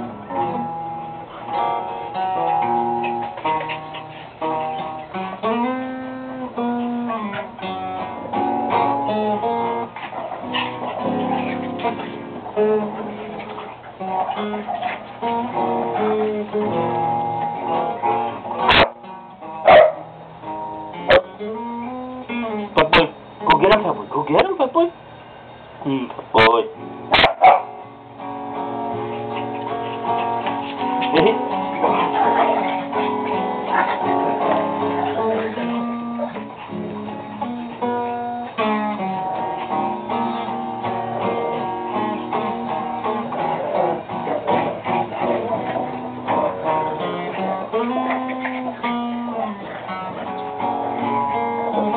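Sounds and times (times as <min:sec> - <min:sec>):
acoustic guitar music: 0:00.0 - 0:51.9
dog barking: 0:10.0 - 0:12.2, 0:12.9 - 0:15.2, 0:18.2 - 0:19.0, 0:19.6 - 0:20.1, 0:21.1 - 0:21.4, 0:27.1 - 0:27.8, 0:29.0 - 0:38.5, 0:42.6 - 0:50.4.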